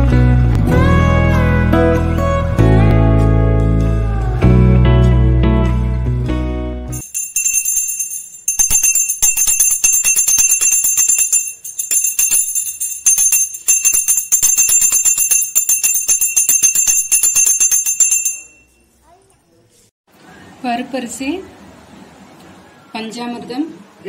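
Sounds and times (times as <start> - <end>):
guitar music: 0.0 - 7.0
hand bell rung rapidly: 7.0 - 18.8.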